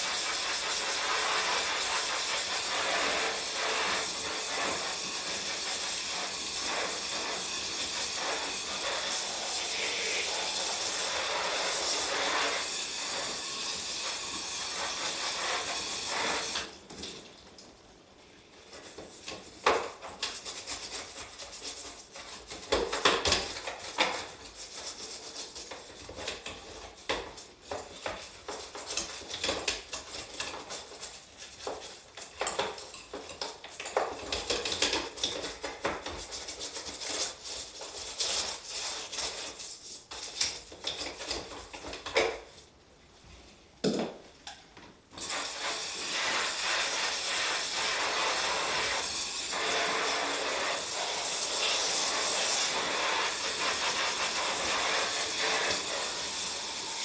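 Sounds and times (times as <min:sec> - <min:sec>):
hose spray hiss: 0:00.0 - 0:16.7, 0:45.2 - 0:57.0.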